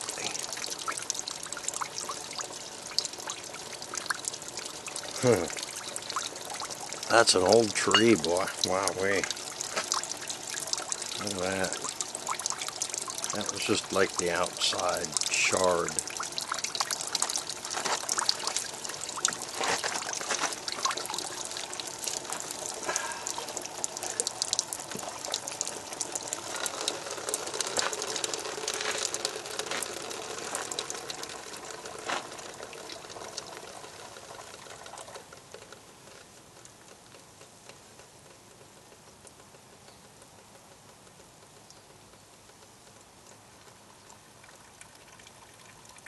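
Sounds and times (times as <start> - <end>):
water spraying and spattering: 0.0 - 33.7
small crackles: 0.0 - 45.8.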